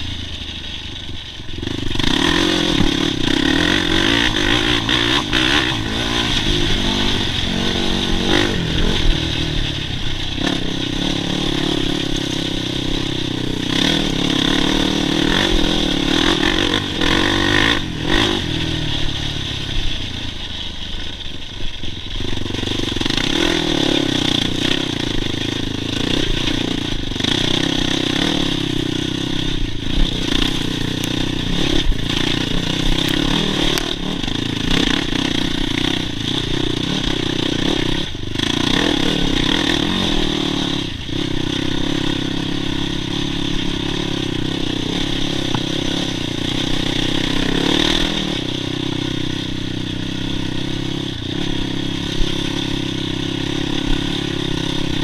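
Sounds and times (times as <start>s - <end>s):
quad bike engine revving: 0.0s - 55.0s.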